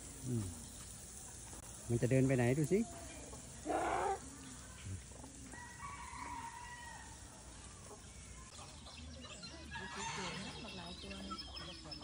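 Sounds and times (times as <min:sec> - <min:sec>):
outdoor background noise: 0:00.0 - 0:12.0
fowl calling: 0:03.6 - 0:04.3.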